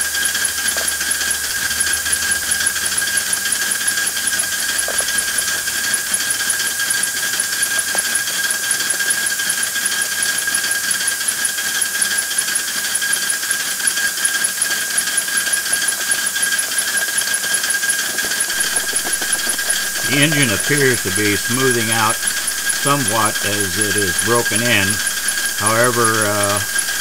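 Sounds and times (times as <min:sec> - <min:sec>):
model steam locomotive running on air: 0:00.0 - 0:27.0
fast even mechanical ticking: 0:18.5 - 0:27.0.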